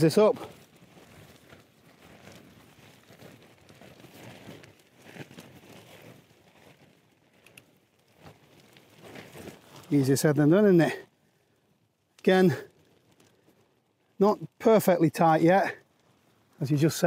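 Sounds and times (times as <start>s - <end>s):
tarp fabric rustling and crinkling: 0.0s - 17.0s
small clicks: 7.3s - 8.8s.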